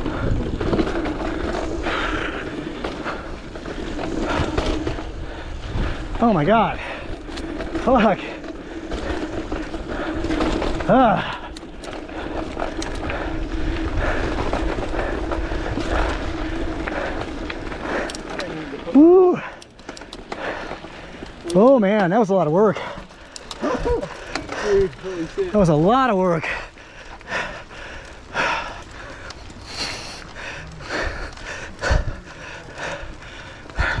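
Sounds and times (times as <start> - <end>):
person breathing hard: 0.0 - 7.7, 8.5 - 18.7, 19.3 - 21.3, 22.7 - 25.5, 26.3 - 34.0
tyres rolling on dirt: 0.0 - 34.0
bike knocks and rattles: 6.8 - 26.9.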